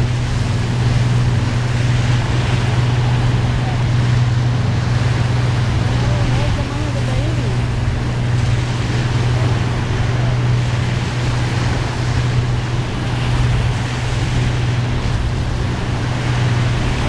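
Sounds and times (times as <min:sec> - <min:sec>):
steady low hum: 0:00.0 - 0:17.0
waves washing onto stony beach: 0:00.0 - 0:17.0
wind on microphone: 0:00.0 - 0:17.0.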